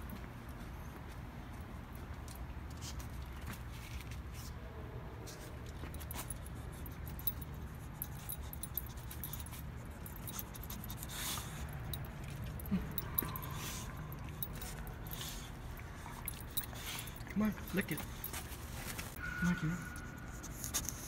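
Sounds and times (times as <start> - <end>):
collar tags jingling: 5.7 - 20.2.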